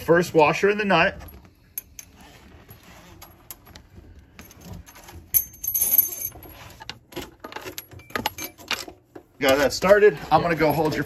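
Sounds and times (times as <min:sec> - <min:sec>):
metal scraping on hose: 0:01.8 - 0:03.8, 0:04.5 - 0:07.7, 0:08.4 - 0:11.0.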